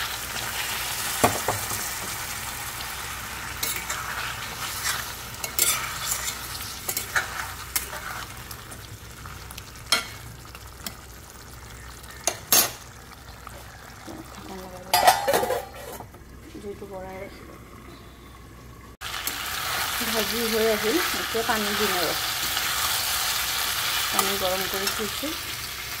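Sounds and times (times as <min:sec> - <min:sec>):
curry sizzling in a pan: 0:00.0 - 0:17.9, 0:18.6 - 0:26.0
metal spatula scraping a pan: 0:03.6 - 0:08.4.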